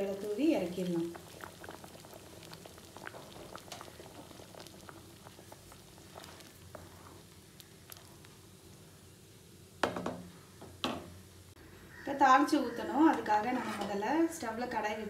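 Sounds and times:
stew bubbles popping: 0.6 - 8.5.

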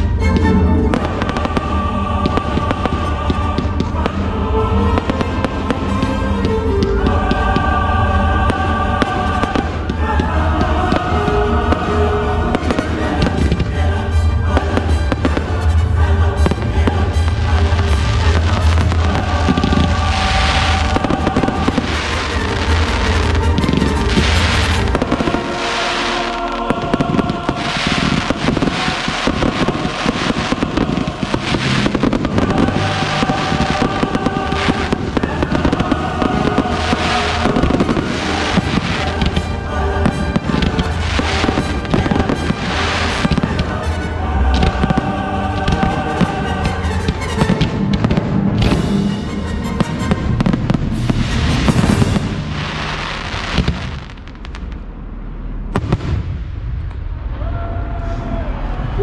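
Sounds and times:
fireworks bursting and crackling: 0.0 - 55.0, 55.6 - 57.2
music: 0.0 - 59.0
sharp firework report: 16.4 - 43.8.

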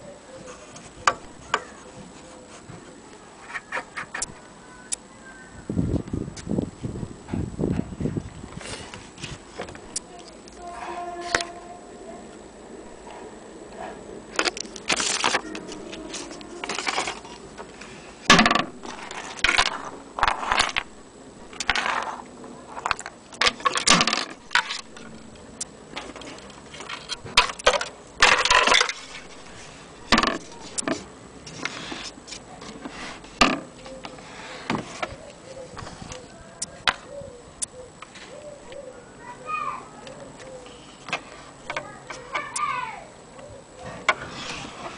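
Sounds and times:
rustling scrapes: 0.4 - 4.2, 8.6 - 9.7, 10.5 - 11.8, 14.6 - 25.4, 26.0 - 36.3, 43.8 - 44.9
handling clicks and knocks: 22.8 - 31.7.

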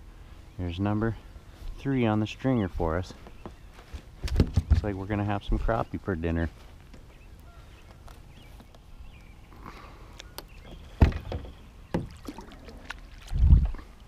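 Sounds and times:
paddle knock and splash: 10.7 - 14.0.

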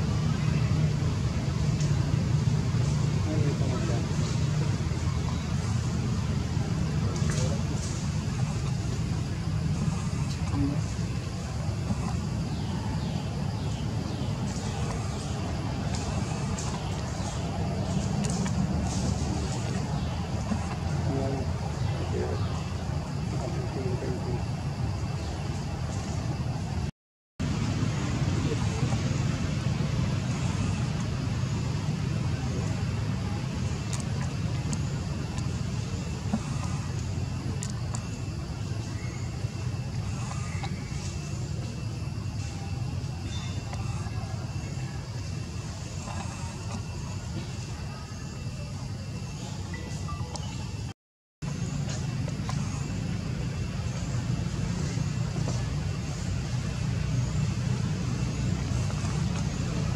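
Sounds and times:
low outdoor rumble: 0.0 - 59.9.

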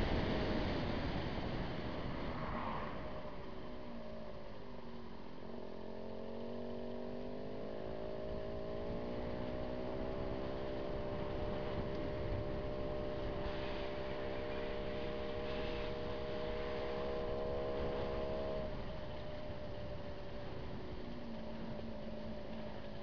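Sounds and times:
road and wind rumble: 0.0 - 23.0
motorcycle engine running: 4.4 - 23.0.

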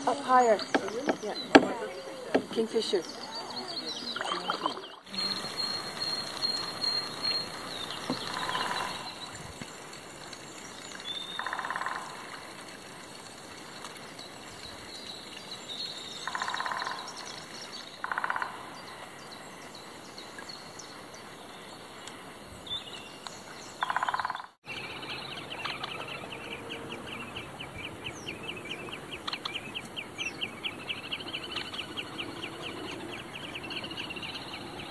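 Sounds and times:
woodpecker drumming on wood: 0.0 - 3.0, 8.0 - 9.1, 11.4 - 12.3, 18.0 - 18.6, 23.8 - 24.5
background birdsong: 0.0 - 34.9.

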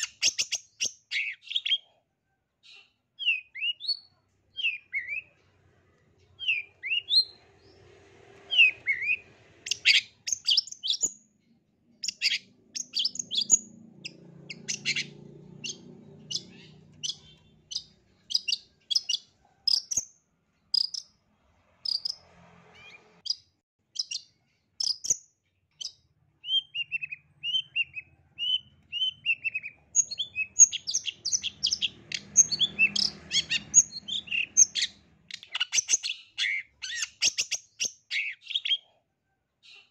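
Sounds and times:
bird singing sharp high notes: 8.5 - 11.2, 12.0 - 20.0, 25.8 - 38.6.

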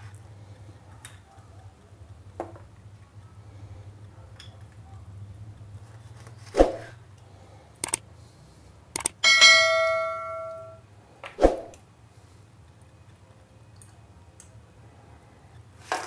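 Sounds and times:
short clicks: 7.8 - 8.0, 8.9 - 9.2
bell-like ding: 9.2 - 10.8.

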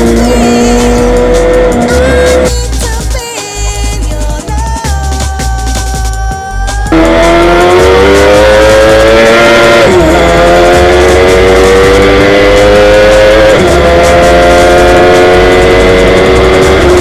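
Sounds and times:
motorcycle engine at full throttle: 0.0 - 3.2, 6.8 - 17.0.

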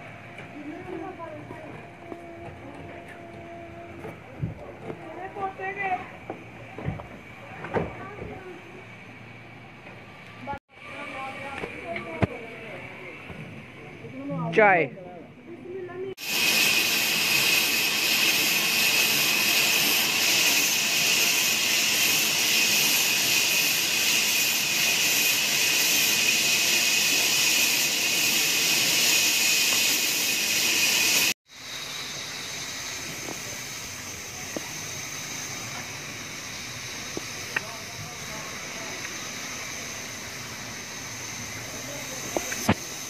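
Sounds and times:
band saw cutting wood: 16.2 - 31.4.

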